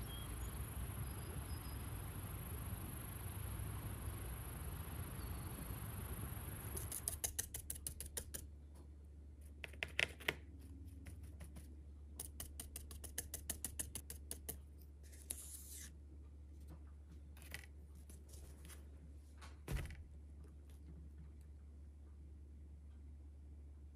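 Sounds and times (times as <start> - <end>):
brush dabbing light dry taps: 6.8 - 15.7
thump: 19.7 - 20.0.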